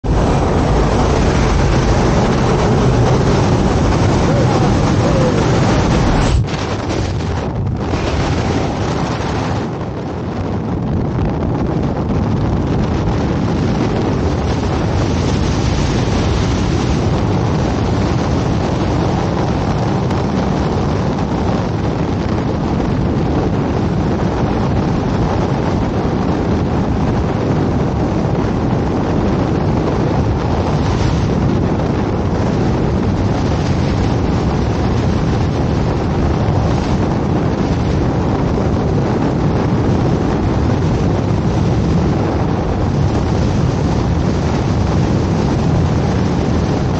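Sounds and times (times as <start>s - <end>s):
wind rushing over microphone: 0.0s - 46.9s.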